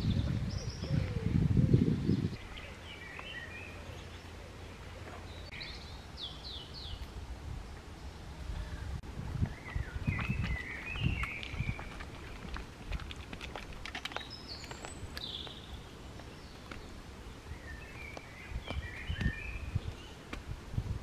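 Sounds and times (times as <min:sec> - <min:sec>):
small birds singing: 0:00.0 - 0:12.6, 0:13.6 - 0:20.5
low thumps of footsteps: 0:09.0 - 0:16.9, 0:18.0 - 0:21.0
footsteps cracking dry sticks: 0:10.1 - 0:16.9.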